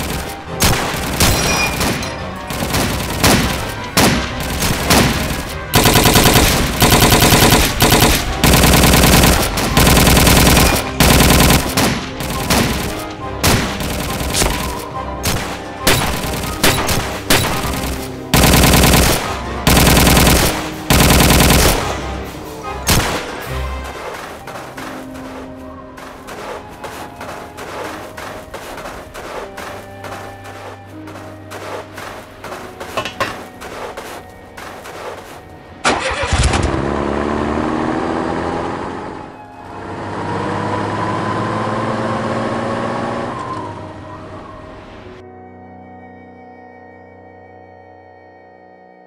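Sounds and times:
rifle shots: 0.0s - 22.2s, 22.9s - 24.1s
machine-gun bursts: 4.5s - 13.0s, 13.7s - 22.0s.

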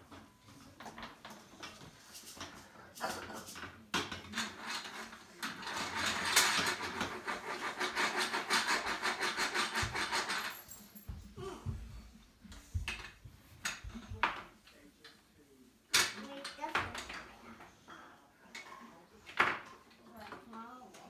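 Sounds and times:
footsteps on wooden floor: 10.9s - 14.2s.

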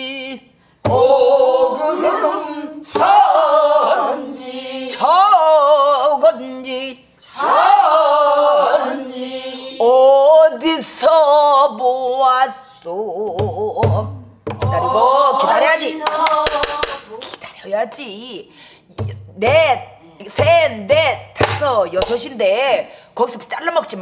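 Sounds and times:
woman singing: 9.8s - 17.2s, 19.4s - 22.3s.

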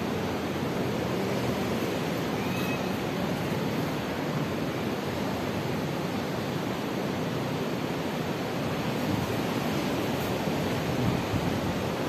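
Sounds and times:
distant ocean surf breaking: 0.0s - 12.0s
wind on the microphone: 8.3s - 12.0s.

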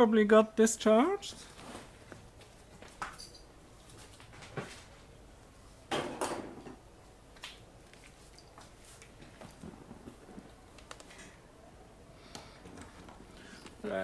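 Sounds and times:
objects clattering on workbench: 5.9s - 6.8s.

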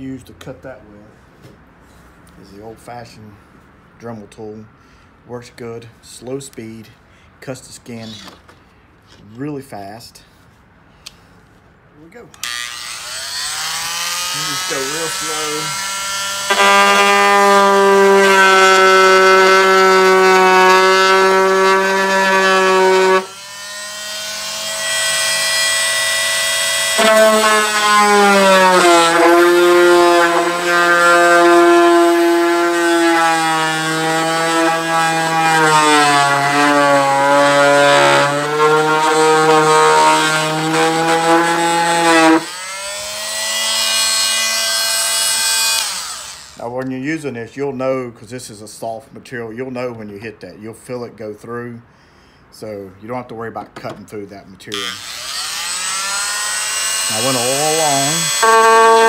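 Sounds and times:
oscillating multi-tool whining: 12.4s - 46.6s, 54.7s - 59.0s.

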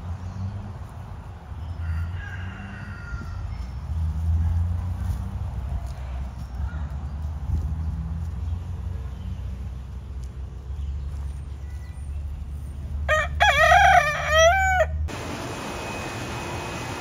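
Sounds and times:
rooster crowing: 1.7s - 3.8s, 13.1s - 15.1s.

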